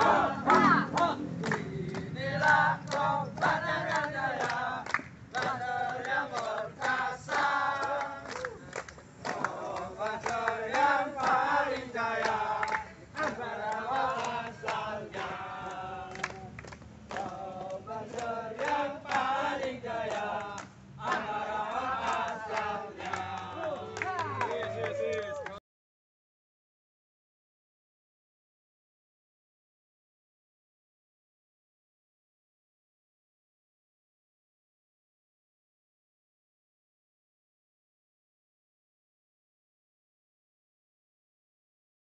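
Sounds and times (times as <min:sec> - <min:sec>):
men chanting in unison: 0:00.0 - 0:25.0
hand clapping: 0:00.4 - 0:25.6.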